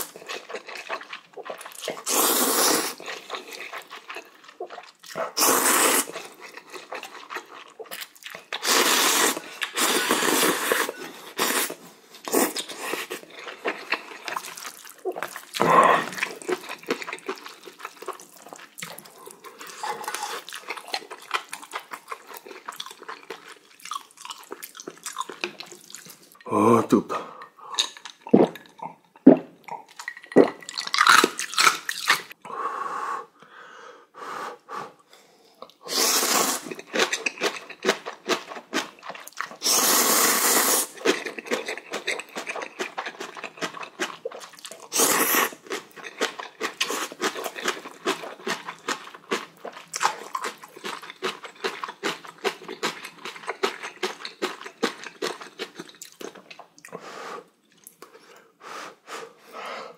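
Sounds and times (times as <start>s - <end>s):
slurping noodles: 0.0s - 7.5s, 8.6s - 16.8s, 35.8s - 37.2s, 39.5s - 42.1s, 44.8s - 45.7s
wet chewing: 0.0s - 26.4s, 40.6s - 56.9s
person gulping water: 15.1s - 16.5s, 26.4s - 31.2s.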